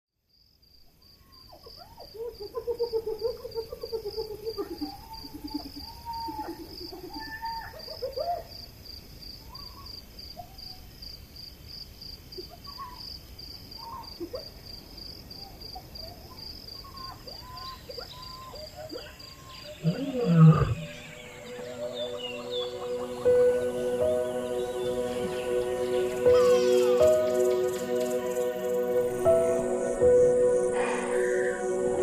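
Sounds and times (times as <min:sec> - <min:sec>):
pulsing insect chirp: 0:00.3 - 0:32.0
birds calling: 0:15.4 - 0:32.0.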